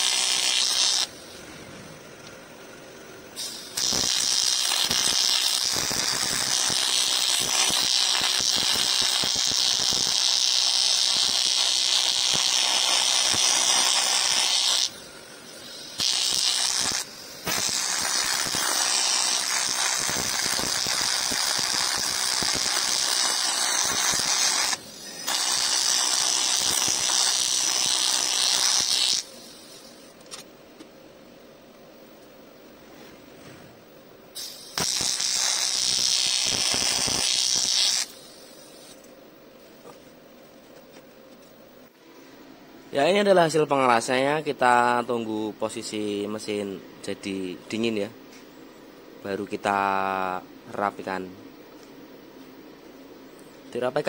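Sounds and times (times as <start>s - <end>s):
welding arc hissing: 0.0s - 1.6s, 2.2s - 30.2s, 34.4s - 39.1s.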